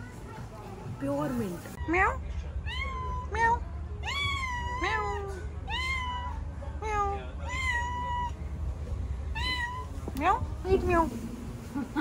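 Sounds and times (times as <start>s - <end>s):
steady low rumble: 0.1s - 12.0s
cat meowing: 2.6s - 8.4s, 9.3s - 10.0s.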